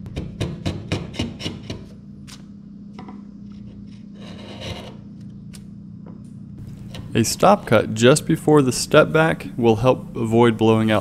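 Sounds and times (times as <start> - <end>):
chisel scraping wood: 3.6 - 5.0, 6.6 - 7.2.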